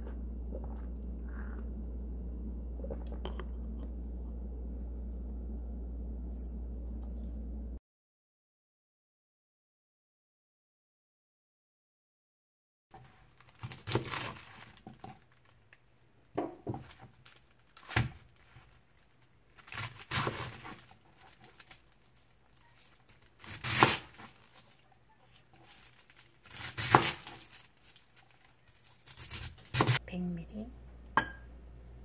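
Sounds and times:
knife crunching through cabbage: 13.0 - 15.6, 16.8 - 30.0.

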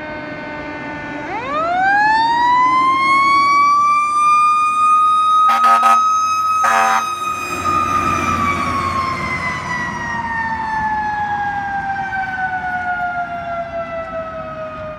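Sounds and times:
fire engine siren: 0.0 - 14.9
air horn blasts: 5.5 - 7.3
truck engine rumbling: 5.5 - 14.5.

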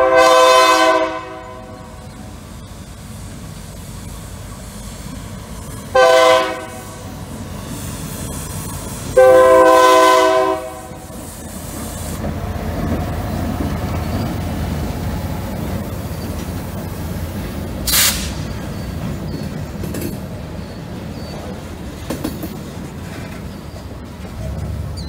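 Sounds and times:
locomotive air horn: 0.0 - 2.1, 5.9 - 7.1, 9.1 - 11.1, 17.9 - 18.4
train wheels rolling: 0.0 - 25.0
diesel engine: 8.4 - 19.5, 23.9 - 25.0.

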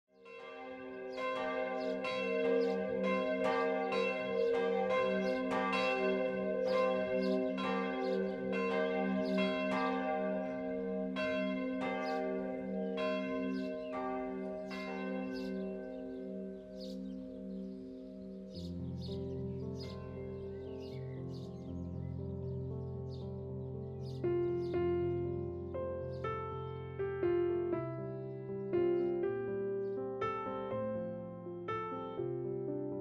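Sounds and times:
church bells ringing: 0.2 - 22.5.

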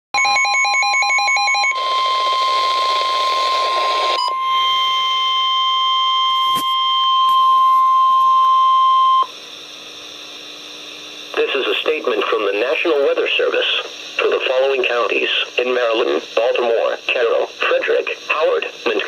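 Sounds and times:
high steady alarm tone: 0.2 - 9.3.

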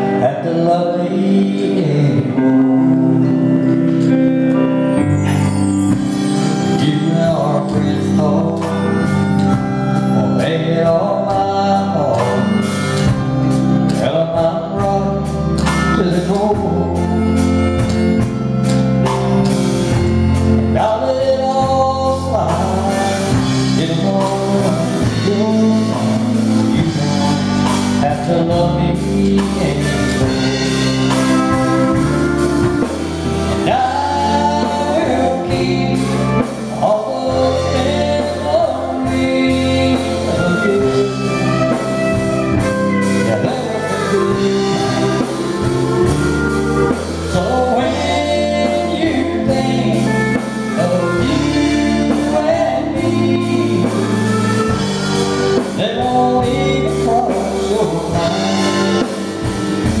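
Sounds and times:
live country band playing: 0.0 - 60.0
person singing: 0.0 - 60.0.

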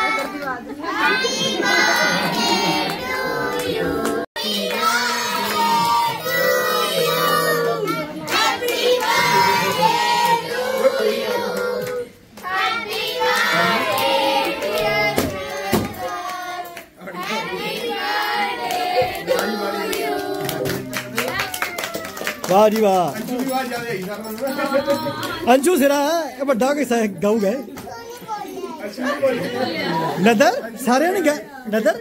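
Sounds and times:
hands clapping: 18.6 - 25.4.

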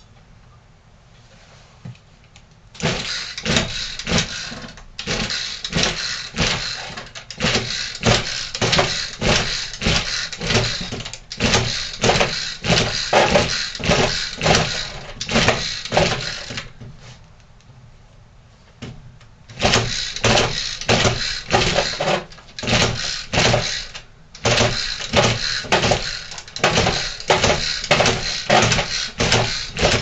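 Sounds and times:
recoil starter rasping: 2.8 - 16.7, 19.5 - 30.0.

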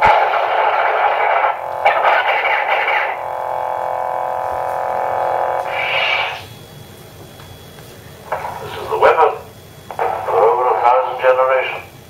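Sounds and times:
rough buzzing effect bursts: 0.0 - 6.9
lightsaber blade hum: 0.0 - 7.0.

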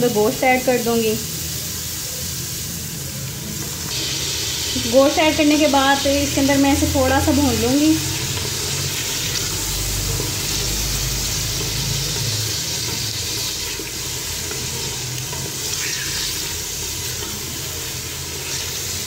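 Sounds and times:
meat sizzling in hot oil: 0.0 - 19.0
wooden spatula stirring: 10.0 - 18.8.

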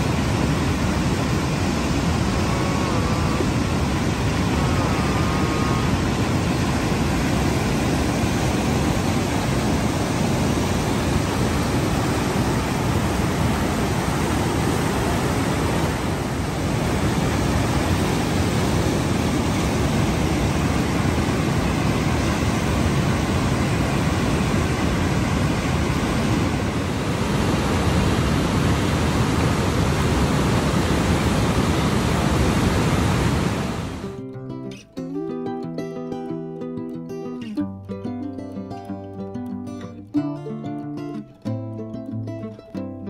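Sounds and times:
river rushing through rapids: 0.0 - 34.2.

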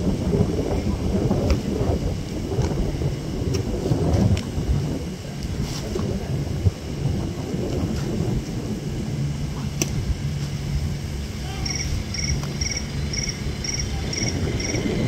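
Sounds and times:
wind rumbling on microphone: 0.0 - 15.0
high trilled chirp: 11.6 - 14.9.

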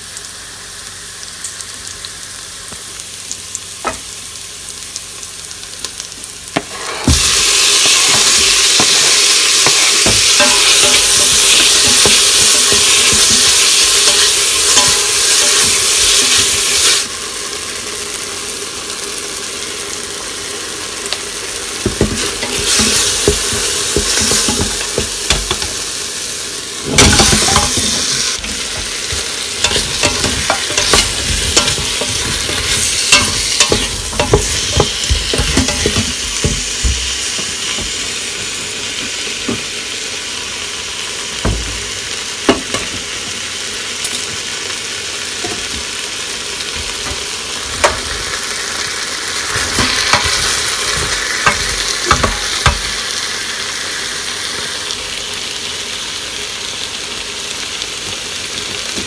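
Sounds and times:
tomatoes sizzling in hot oil: 0.0 - 59.0
wooden spatula scraping pot: 26.8 - 38.0
loud thump: 34.2 - 37.9, 41.4 - 42.0.

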